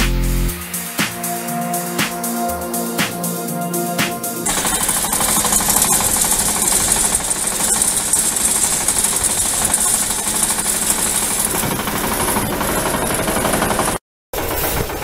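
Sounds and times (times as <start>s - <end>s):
tractor diesel engine running: 4.5s - 13.6s.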